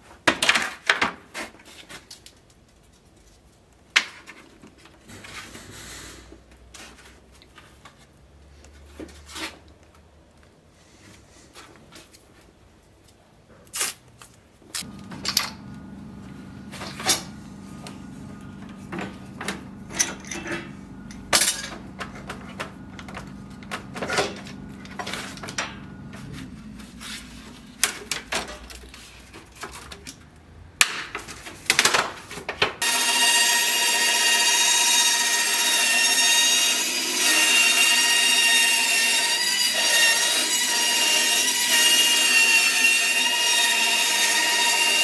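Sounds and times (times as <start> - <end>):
band saw running: 14.8 - 28.2, 32.8 - 45.0
low hum: 14.8 - 28.3.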